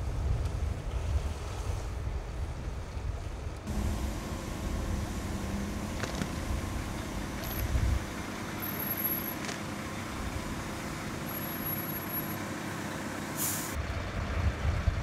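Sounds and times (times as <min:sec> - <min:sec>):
diesel engines idling: 0:03.7 - 0:15.0
short hiss: 0:13.4 - 0:13.8.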